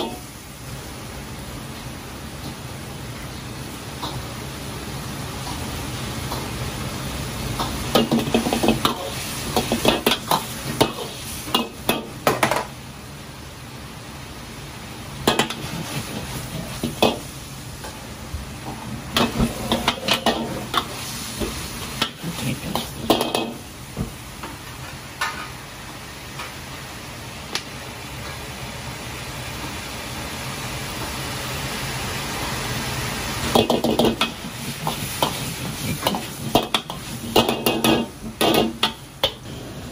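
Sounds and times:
sizzling: 0:00.0 - 0:39.9
metal ladle scraping wok: 0:19.2 - 0:21.2.

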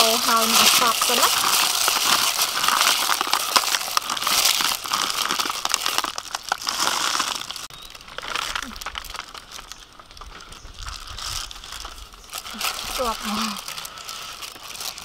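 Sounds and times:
plastic glove crinkling: 0:00.0 - 0:15.0.

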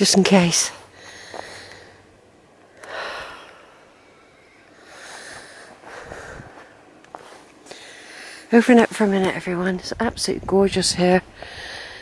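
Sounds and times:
person breathing: 0:00.8 - 0:08.5, 0:11.4 - 0:12.0.

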